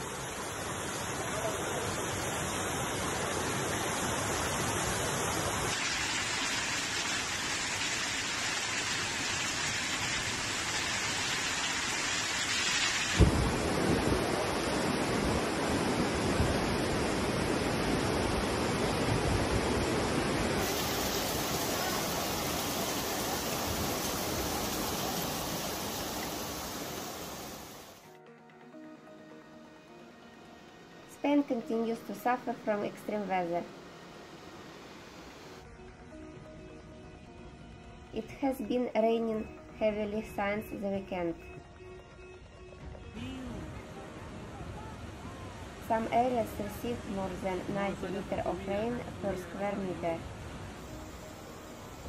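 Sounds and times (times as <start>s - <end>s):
floodwater rushing: 0.0s - 28.0s
heavy rain: 0.0s - 28.0s.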